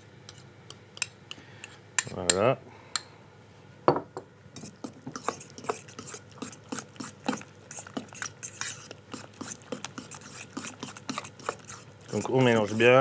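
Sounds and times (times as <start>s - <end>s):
utensil scraping a metal bowl: 4.6s - 13.0s.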